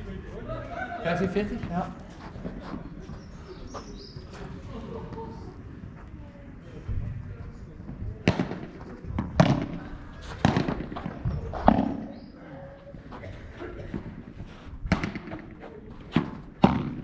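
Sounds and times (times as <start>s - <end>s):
padel ball hit by racket: 8.2s - 9.8s, 10.4s - 12.1s, 14.9s - 17.0s.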